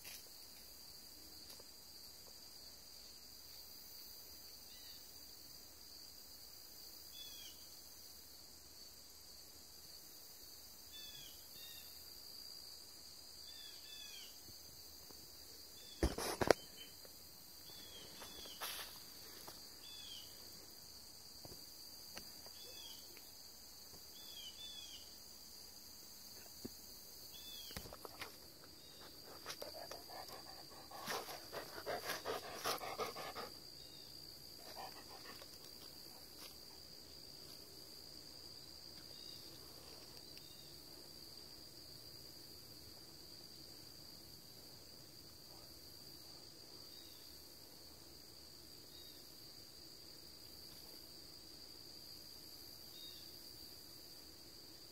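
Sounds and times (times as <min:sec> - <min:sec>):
crickets chirring: 0:00.0 - 0:54.9
animal panting or sniffing: 0:29.0 - 0:33.6, 0:34.6 - 0:35.6.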